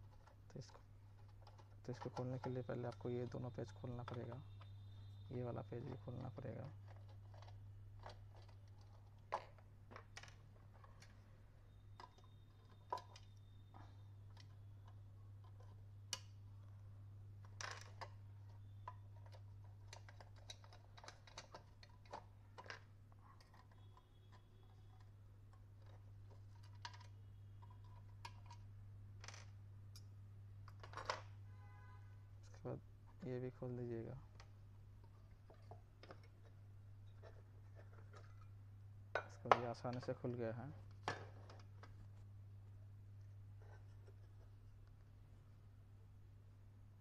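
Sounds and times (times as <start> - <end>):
plastic parts knocking: 0.1 - 11.2, 11.9 - 16.3, 17.4 - 28.6, 30.6 - 31.4, 34.3 - 38.5, 39.1 - 42.1.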